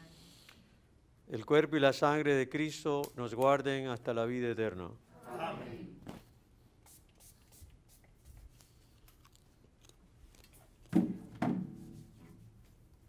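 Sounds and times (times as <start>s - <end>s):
faint clicks and mouth sounds: 6.8s - 10.9s.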